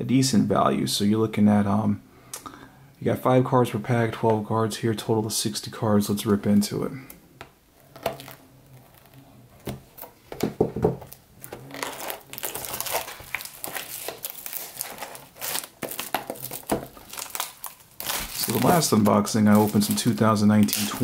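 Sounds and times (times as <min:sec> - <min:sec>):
plastic shrink wrap crinkling: 0:07.8 - 0:10.1, 0:11.0 - 0:21.0
loud plastic rustle: 0:11.4 - 0:21.0.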